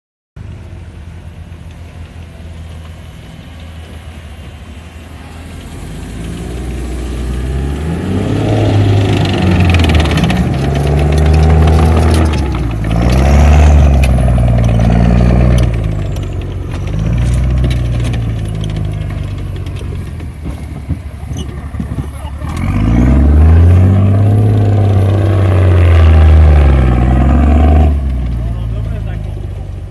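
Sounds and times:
tracked vehicle engine revving: 0.4 - 29.9
running gear clattering: 9.0 - 22.9.

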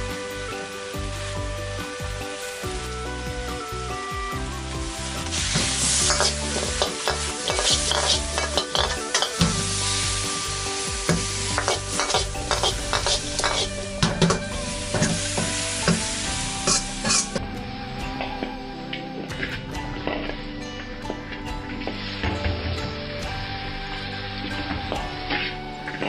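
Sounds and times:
chicken wings sizzling in a wok: 0.0 - 17.4
spatula scraping against pan: 6.1 - 9.4, 11.6 - 13.8.

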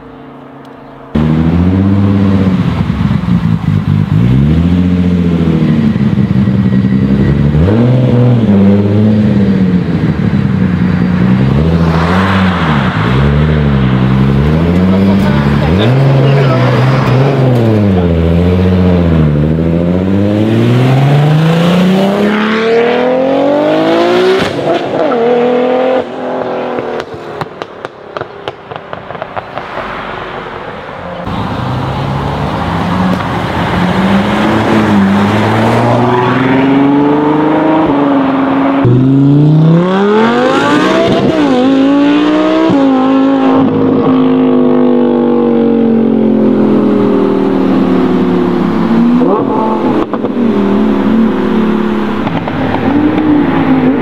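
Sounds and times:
sports cars accelerating hard: 0.0 - 30.6, 31.2 - 54.0
exhaust crackles and pops: 26.7 - 29.9, 52.1 - 54.0.

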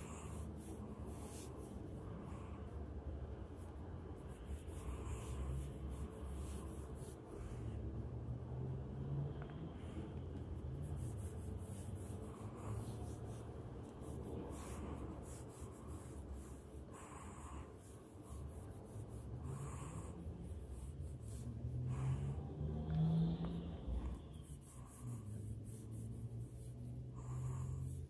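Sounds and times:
brush swishing on paper: 0.0 - 2.4, 3.4 - 7.7, 10.4 - 28.0.

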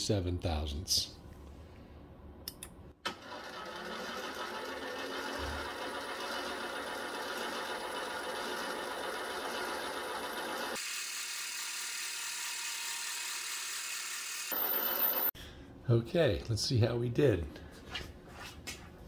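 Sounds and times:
metal lathe cutting: 3.6 - 15.3.

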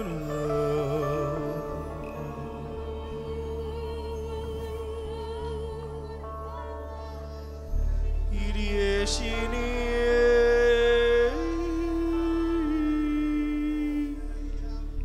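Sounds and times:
low drone: 0.0 - 15.0
synthesizer pad chords: 0.0 - 15.0.

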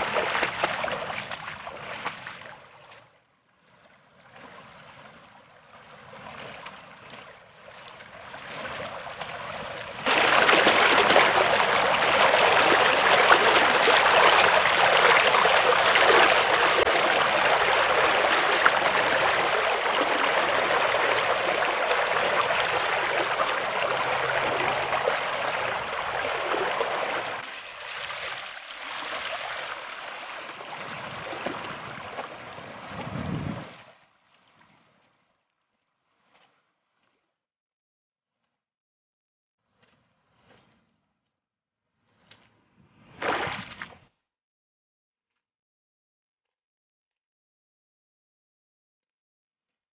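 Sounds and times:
water rushing through a channel: 0.0 - 35.0, 43.1 - 43.9.

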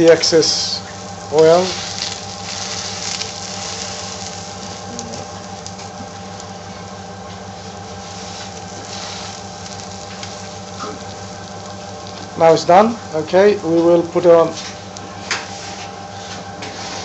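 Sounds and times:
omelette sizzling in oil: 0.0 - 13.2
steady low hum: 0.0 - 17.0.

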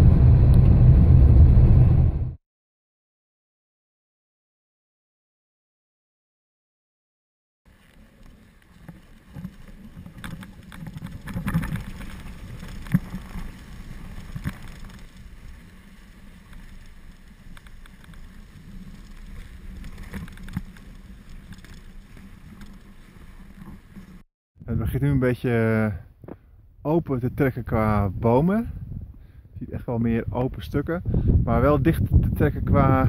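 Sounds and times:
sled sliding on snow: 7.7 - 24.2.

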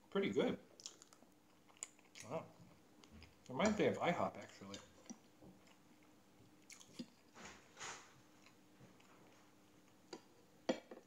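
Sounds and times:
person chewing: 0.7 - 3.5, 4.5 - 7.3.

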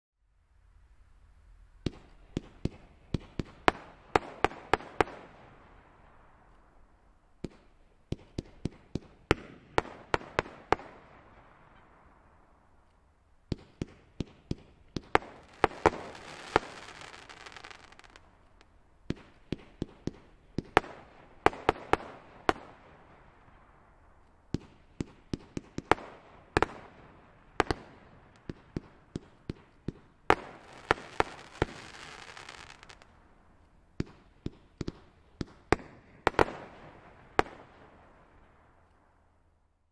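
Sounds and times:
fireworks bangs: 1.6 - 6.7, 13.5 - 39.0
fireworks hiss: 15.3 - 18.2, 30.4 - 33.1.

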